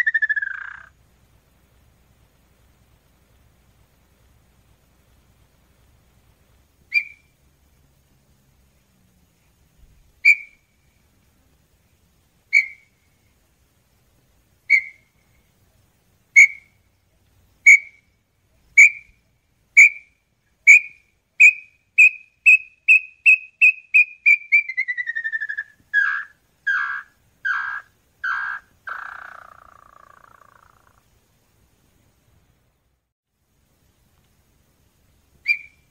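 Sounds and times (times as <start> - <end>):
bird whistled song and trill: 0.0 - 0.9, 6.9 - 7.3, 10.2 - 10.8, 12.5 - 13.0, 14.7 - 15.4, 16.3 - 16.8, 17.6 - 18.1, 18.7 - 19.2, 19.8 - 30.8, 35.4 - 35.9.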